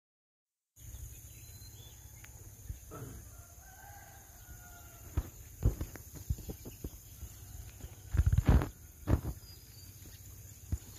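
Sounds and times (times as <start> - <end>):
rooster crowing: 2.9 - 5.3.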